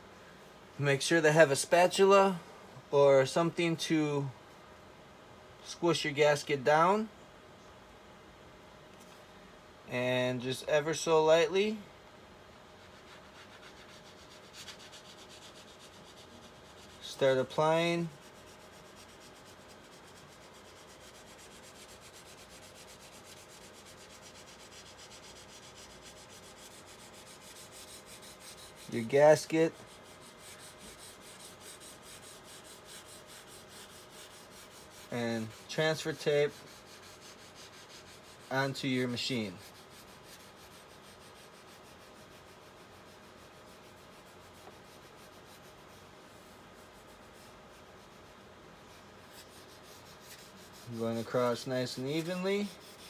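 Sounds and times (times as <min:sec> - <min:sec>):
spatula rubbing on film: 0:12.6 - 0:53.0.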